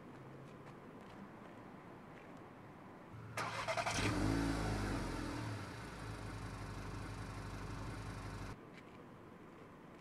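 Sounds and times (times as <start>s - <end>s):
car engine starting and idling: 3.2s - 8.6s.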